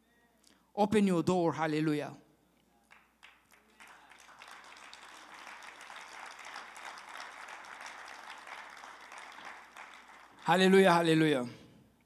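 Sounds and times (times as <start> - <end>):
crowd applauding: 2.9 - 11.2.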